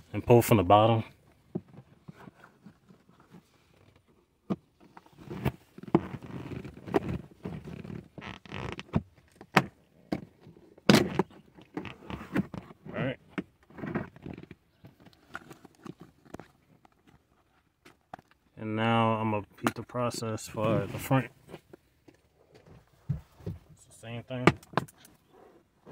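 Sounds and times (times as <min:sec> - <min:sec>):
plastic rubbing and scraping: 0:01.5 - 0:18.4, 0:20.4 - 0:21.9.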